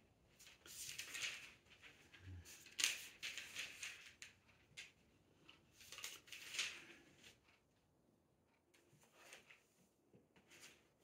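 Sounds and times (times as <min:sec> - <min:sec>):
pages turning: 0:00.3 - 0:07.6, 0:08.9 - 0:09.8, 0:10.4 - 0:11.0.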